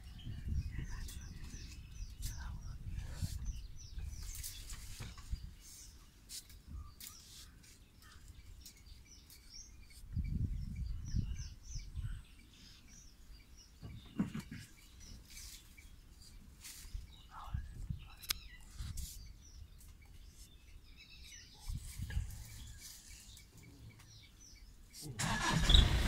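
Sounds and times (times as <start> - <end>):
small birds chirping: 0.0 - 26.0
rustling in bushes: 15.0 - 17.3, 21.6 - 23.6.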